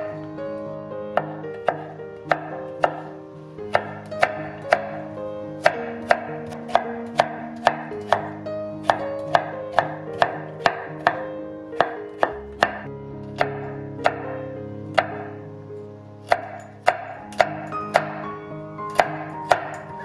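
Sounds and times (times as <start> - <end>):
knife chopping on wooden board: 1.2 - 5.0, 5.6 - 14.3, 15.0 - 15.3, 16.2 - 18.3, 18.9 - 19.9.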